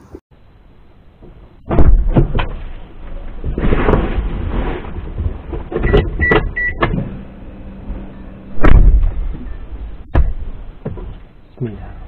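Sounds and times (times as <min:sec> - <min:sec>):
rustling and knocks: 0:01.2 - 0:07.1, 0:10.1 - 0:11.3
car door slamming shut: 0:01.7 - 0:02.6, 0:08.6 - 0:09.4, 0:10.1 - 0:11.1.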